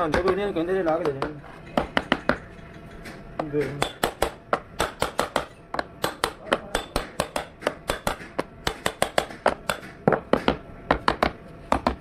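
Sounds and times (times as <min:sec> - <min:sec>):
hammer tapping on metal: 0:03.4 - 0:12.0.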